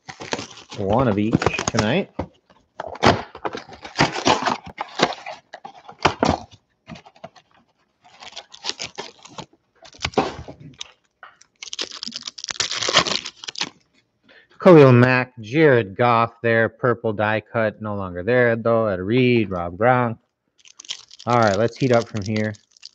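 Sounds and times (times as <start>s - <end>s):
cardboard box tearing: 0.0s - 2.0s, 2.8s - 7.4s, 8.1s - 10.6s, 11.6s - 13.7s
wrapper crinkling and tearing: 0.0s - 2.1s, 2.8s - 13.9s, 20.6s - 22.9s
card packs rustling: 0.0s - 13.8s, 20.6s - 22.9s.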